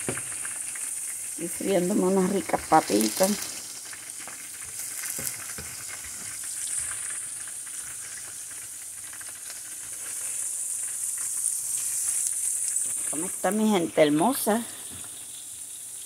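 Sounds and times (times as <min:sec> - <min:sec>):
potatoes sizzling in hot oil: 0:00.0 - 0:16.0
spatula scraping and tapping pan: 0:04.2 - 0:08.6.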